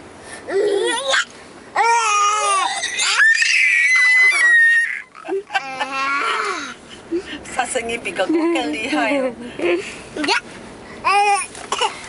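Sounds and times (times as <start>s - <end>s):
baby high-pitched squeal: 0.5s - 5.2s
baby crying: 1.8s - 6.7s.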